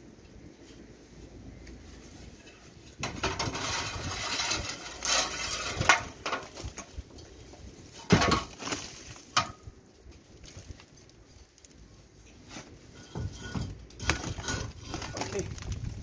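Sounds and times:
metal ladder rattling and scraping: 2.3 - 9.7, 12.4 - 15.6.

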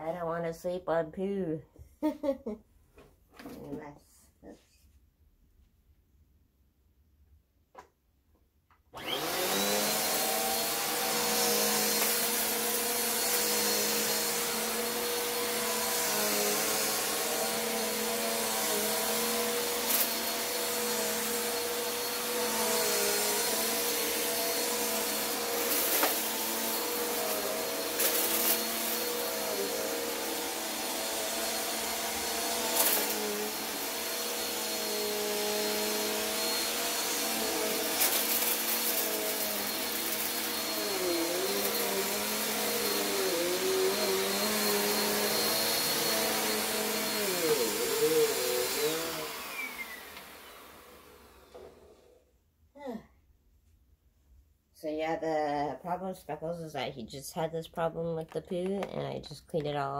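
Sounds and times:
vacuum cleaner running: 9.0 - 52.2.

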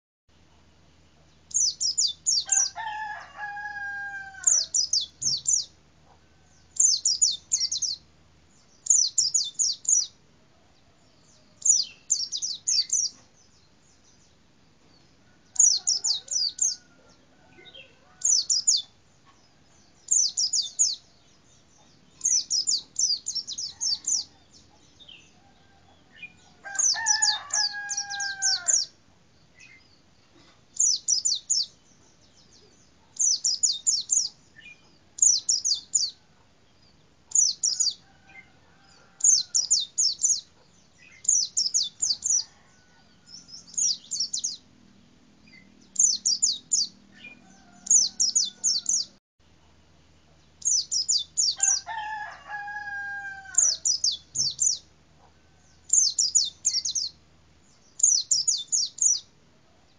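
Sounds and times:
rooster crowing: 2.5 - 4.8, 25.4 - 28.9, 38.0 - 39.6, 42.3 - 43.7, 47.2 - 49.1, 51.5 - 54.0.

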